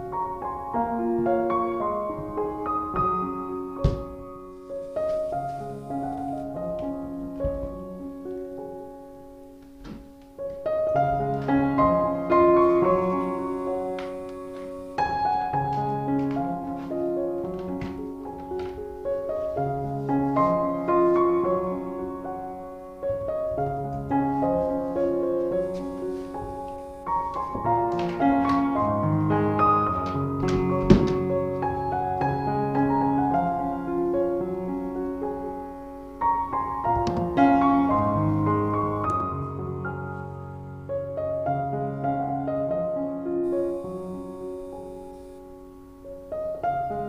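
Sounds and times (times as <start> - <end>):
piano melody over chords: 0.0 - 47.0.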